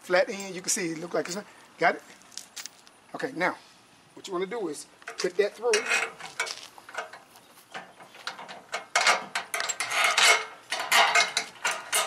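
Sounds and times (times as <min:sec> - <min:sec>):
bolt and washers clinking on metal: 0:05.0 - 0:12.0.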